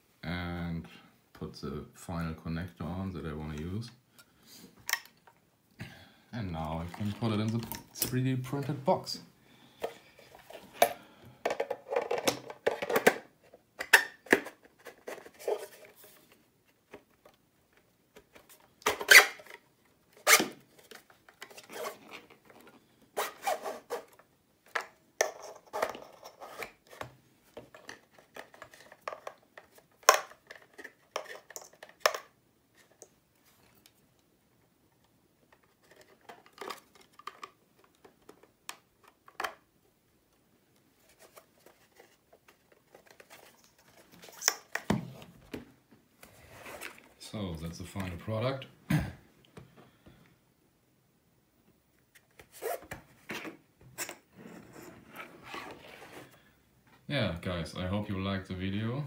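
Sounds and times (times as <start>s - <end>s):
metal and plastic clicks and scraping: 9.8s - 34.0s, 35.0s - 39.6s, 41.1s - 44.9s.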